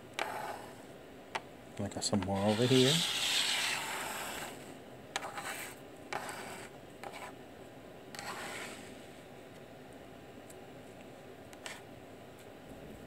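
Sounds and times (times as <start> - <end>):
soldering iron tip scraping metal: 2.4 - 4.5.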